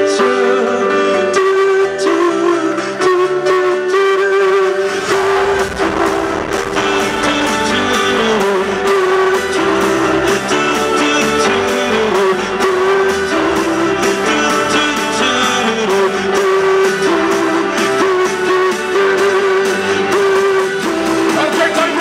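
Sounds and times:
electric guitar: 0.0 - 22.0
live rock band: 0.0 - 22.0
person singing: 0.0 - 22.0
bass guitar: 4.4 - 22.0.

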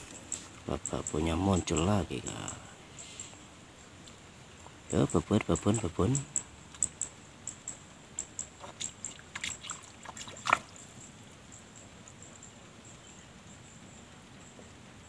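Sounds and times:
water splashes and plops: 8.6 - 11.0.

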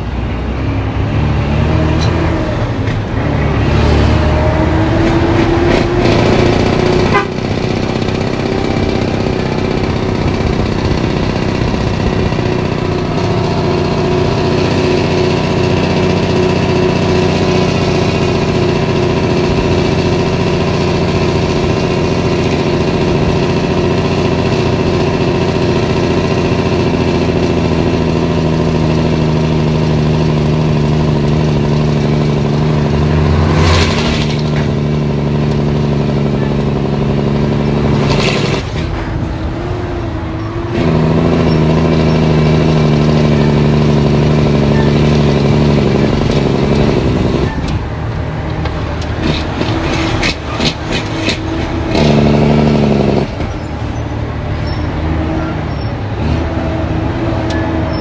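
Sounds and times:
diesel truck engine: 0.0 - 58.0.

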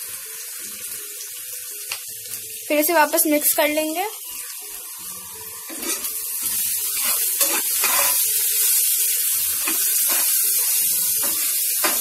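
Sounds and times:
onions sizzling in oil: 0.0 - 12.0
spatula scraping a pan: 5.6 - 8.6, 9.4 - 12.0.

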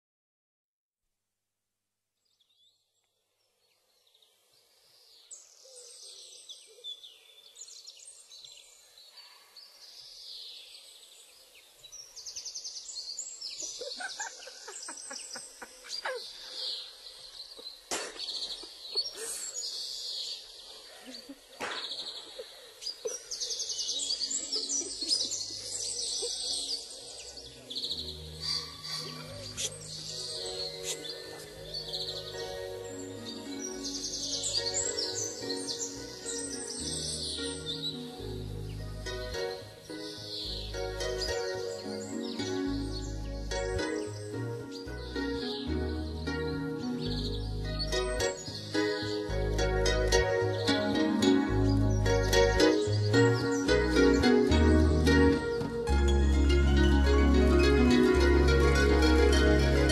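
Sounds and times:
faint outdoor background noise: 1.8 - 59.9
birds chirping: 3.4 - 59.9
soft background music: 24.0 - 59.9.

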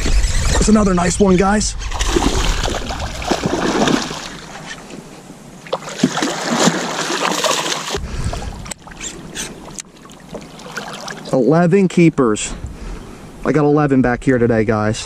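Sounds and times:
wind rumbling on microphone: 0.0 - 5.2, 7.9 - 9.8, 12.5 - 15.0
fish thrashing and splashing: 1.9 - 5.0, 5.6 - 8.0, 8.8 - 11.3.

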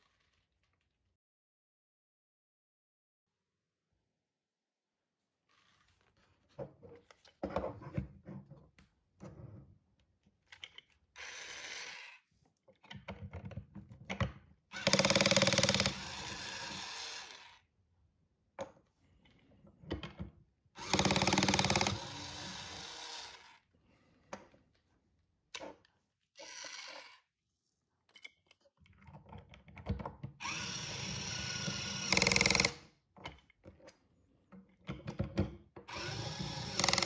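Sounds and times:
toy cordless screwdriver whirring: 11.2 - 12.2, 14.7 - 17.6, 20.8 - 23.6, 26.4 - 27.3, 30.4 - 32.8, 35.9 - 37.0
plastic parts clicking and knocking: 12.7 - 16.0, 28.1 - 30.4, 32.0 - 37.0.

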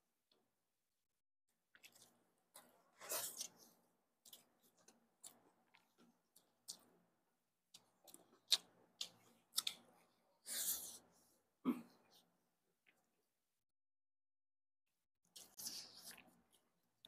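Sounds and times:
chewing and eating: 1.7 - 7.1, 7.7 - 11.1, 15.3 - 17.0.

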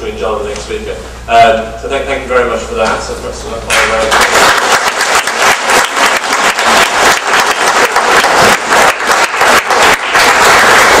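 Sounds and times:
audience applauding: 3.7 - 11.0.

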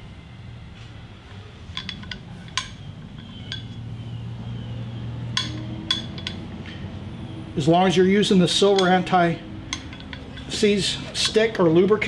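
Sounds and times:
low steady hum: 0.0 - 12.0
light metallic clinks: 1.3 - 6.9, 8.6 - 10.8.

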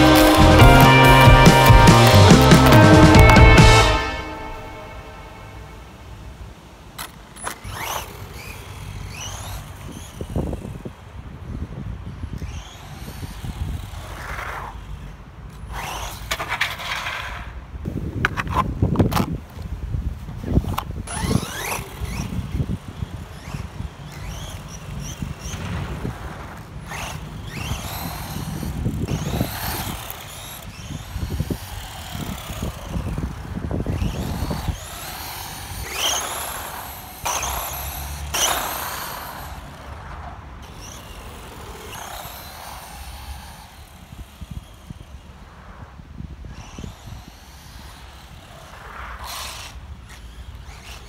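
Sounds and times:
toy car electric motor whining: 0.0 - 5.3, 7.0 - 17.4, 20.4 - 45.5, 46.1 - 51.0.

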